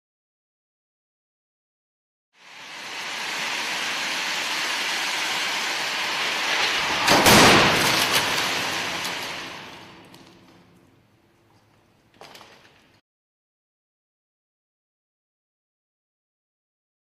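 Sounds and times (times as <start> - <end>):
steady rushing noise: 2.4 - 10.3
car crashing into barrier: 3.5 - 10.3
clattering debris: 6.2 - 10.9.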